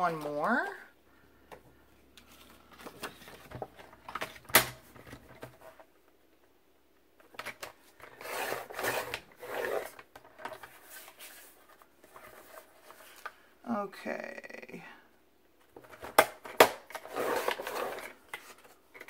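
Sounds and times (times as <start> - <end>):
paper rustling and sliding: 10.6 - 13.3.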